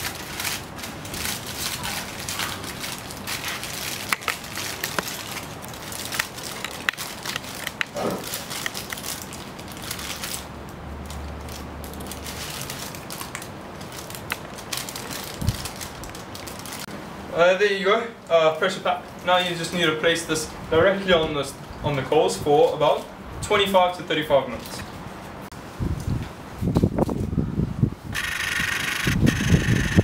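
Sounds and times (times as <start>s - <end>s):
aluminium foil crinkling: 0.0s - 16.9s.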